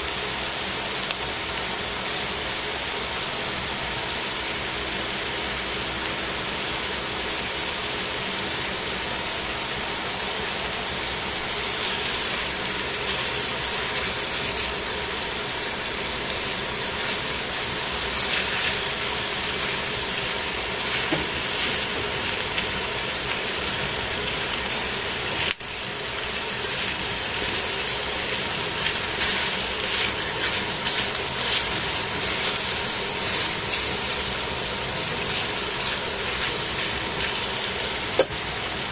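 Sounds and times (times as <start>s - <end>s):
chicken sizzling in a pan: 0.0s - 38.9s
tongs turning food: 11.6s - 23.7s, 24.6s - 38.3s.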